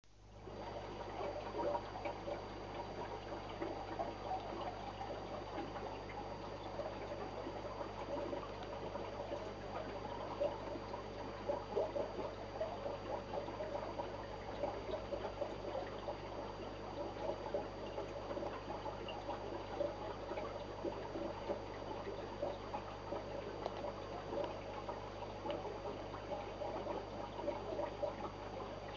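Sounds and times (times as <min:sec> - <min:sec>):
aquarium water trickling and bubbling: 0:00.1 - 0:28.9.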